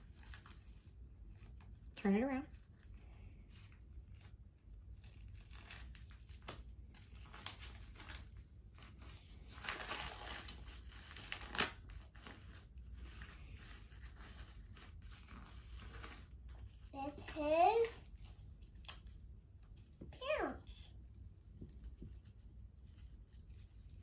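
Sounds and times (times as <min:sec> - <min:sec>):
toy packaging crinkling: 0:04.9 - 0:16.5.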